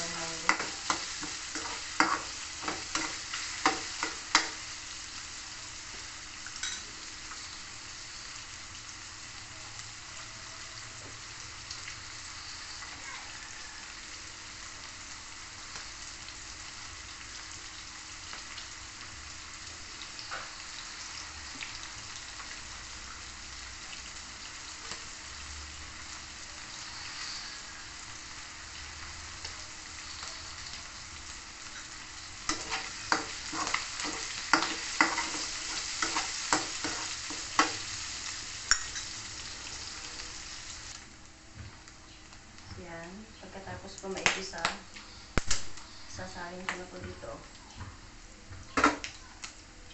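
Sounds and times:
meat sizzling in hot oil: 0.0 - 47.4
spatula scraping a wok: 32.5 - 37.9.

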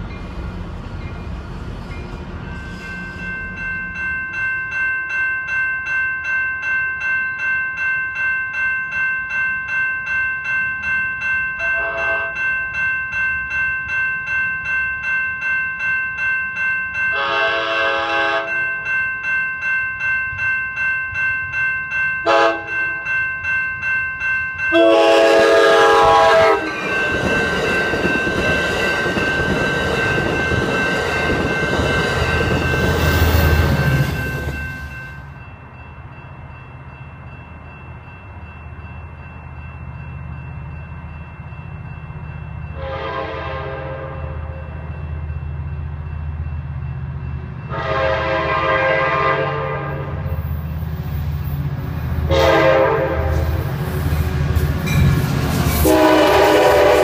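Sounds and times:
train cars rumbling: 0.0 - 4.8, 14.2 - 57.0
crossing warning bells ringing: 0.0 - 57.0
train horn blasts: 11.7 - 12.4, 17.1 - 18.6, 22.2 - 22.8, 24.7 - 26.8, 42.8 - 44.6, 47.7 - 50.3, 52.3 - 53.6, 55.8 - 57.0.

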